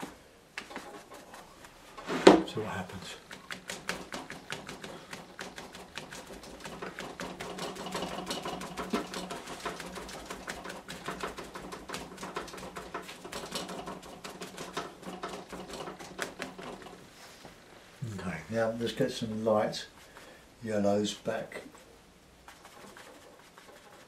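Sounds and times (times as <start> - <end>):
sponge dabbing paint on paper: 0.6 - 17.0, 21.4 - 24.0.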